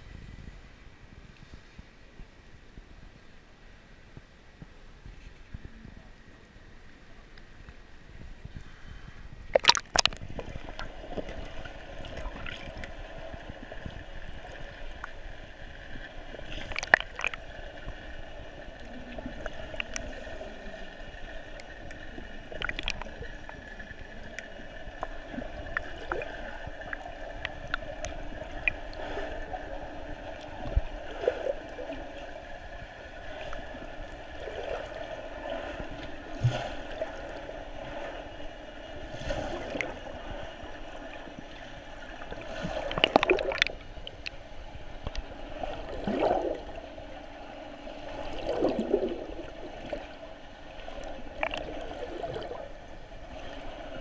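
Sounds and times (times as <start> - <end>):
underwater hum with gurgling: 0.0 - 54.0
sharp underwater clicks and knocks: 9.5 - 11.3, 16.4 - 17.5, 22.6 - 23.1, 42.9 - 44.4, 51.4 - 51.7
water splashing: 9.5 - 15.2, 15.8 - 32.3, 42.3 - 44.4, 45.5 - 46.9, 48.0 - 54.0.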